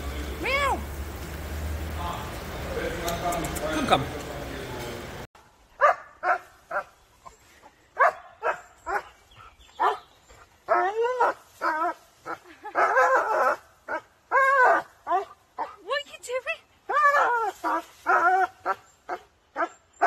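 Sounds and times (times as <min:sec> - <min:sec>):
dog barking: 0:05.8 - 0:06.9, 0:08.0 - 0:09.1, 0:09.8 - 0:10.0.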